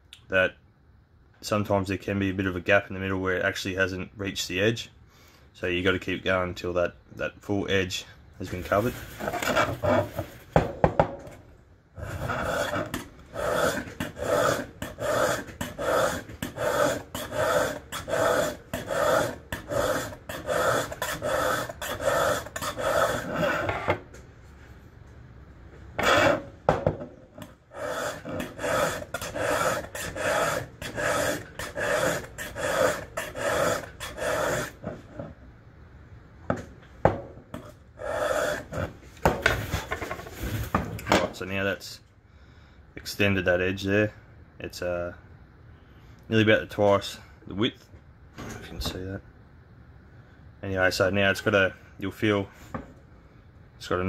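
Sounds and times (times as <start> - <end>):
file rasping on steel: 9.2 - 10.2, 12.0 - 24.0, 26.0 - 26.5, 27.4 - 35.0, 37.5 - 38.9.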